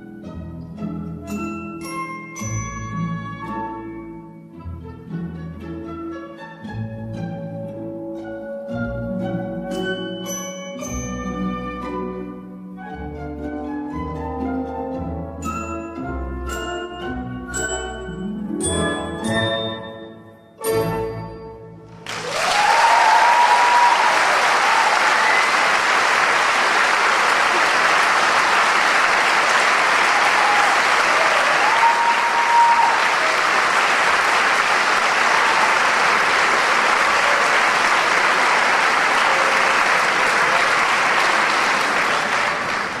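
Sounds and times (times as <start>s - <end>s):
orchestral music: 0.0s - 22.3s
audience applause: 22.0s - 43.0s.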